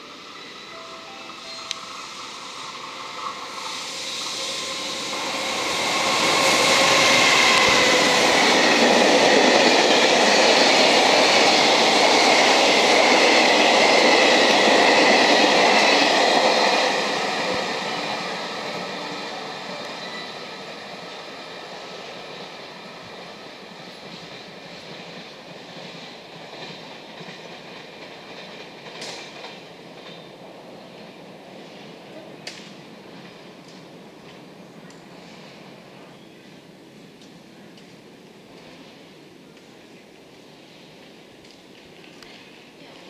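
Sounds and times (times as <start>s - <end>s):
background hiss: 0.0s - 8.6s
freight train rolling on track: 0.0s - 43.0s.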